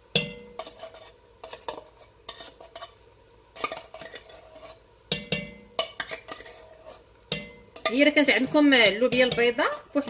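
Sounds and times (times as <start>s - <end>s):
spoon tapping metal: 0.1s - 0.7s, 5.1s - 6.4s, 7.3s - 9.7s
metal spoon scraping tin can: 0.5s - 3.0s, 3.6s - 4.8s, 5.8s - 7.1s.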